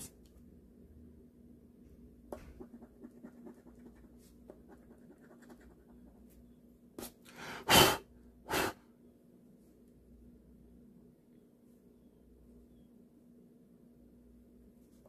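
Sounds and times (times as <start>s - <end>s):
puffs of breath: 7.2s - 8.9s.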